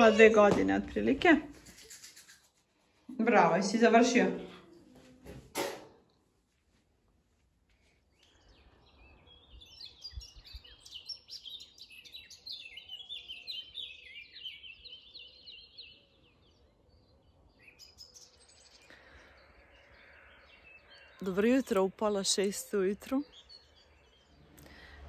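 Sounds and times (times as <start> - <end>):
songbirds chirping and singing: 7.7 - 25.0.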